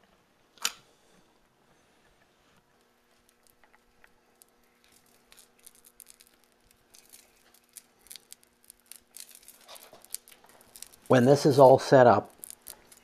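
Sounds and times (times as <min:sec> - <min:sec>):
paint roller sticky crackle: 0:02.6 - 0:13.0.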